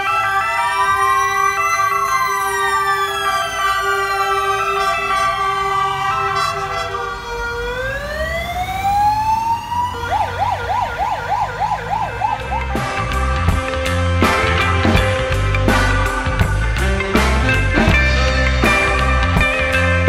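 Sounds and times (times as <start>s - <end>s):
music: 0.0s - 6.3s, 11.8s - 20.0s
siren fast yelp: 0.0s - 13.2s
ambulance sirens wailing: 0.0s - 20.0s.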